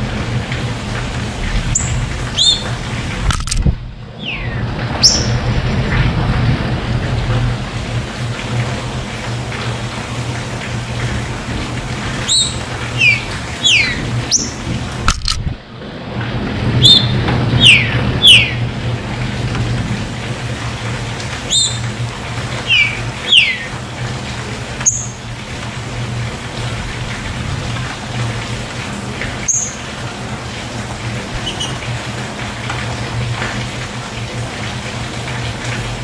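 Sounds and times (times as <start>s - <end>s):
running water splashing: 0.0s - 36.0s
bird whistling downward notes: 1.8s - 2.7s, 12.3s - 14.6s, 21.5s - 21.8s.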